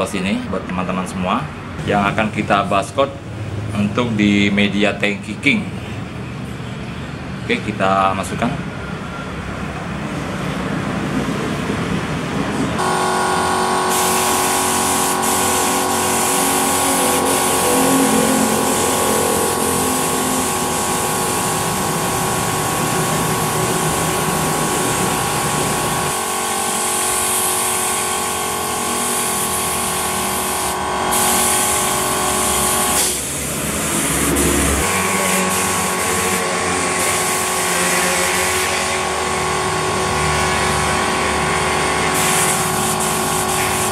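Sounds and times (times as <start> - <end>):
air compressor humming: 12.2 - 43.9
spray gun hissing: 12.8 - 39.1, 42.2 - 43.9.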